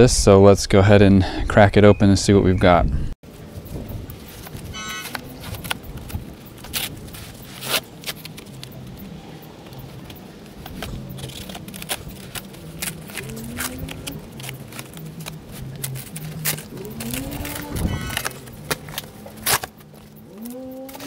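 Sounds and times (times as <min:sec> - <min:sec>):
cardboard box being cut and torn: 0:04.4 - 0:08.7, 0:10.7 - 0:21.0.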